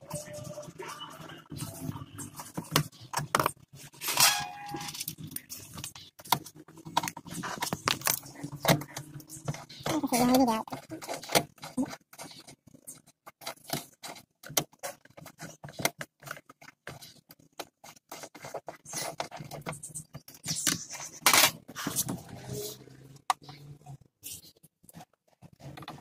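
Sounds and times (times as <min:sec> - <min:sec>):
loud scrape: 0:04.0 - 0:04.9, 0:21.8 - 0:23.0.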